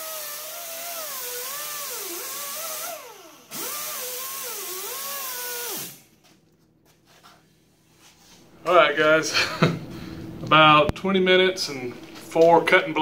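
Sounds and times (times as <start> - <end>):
grinder cutting steel: 0.0 - 6.0.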